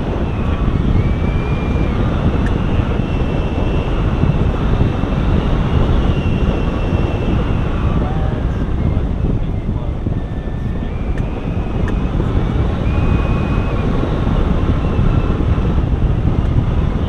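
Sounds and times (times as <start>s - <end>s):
wind buffeting microphone: 0.0s - 17.0s
faint high whistle: 0.1s - 4.5s, 5.6s - 9.3s, 12.7s - 15.5s.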